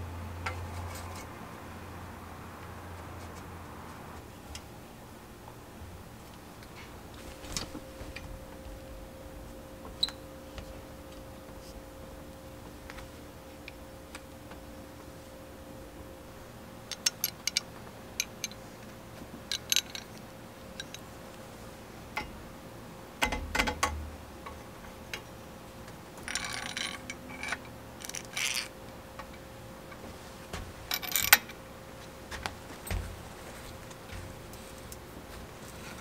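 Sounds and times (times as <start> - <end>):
metal tool parts clinking: 19.5 - 20.2, 26.3 - 28.7, 30.9 - 31.6.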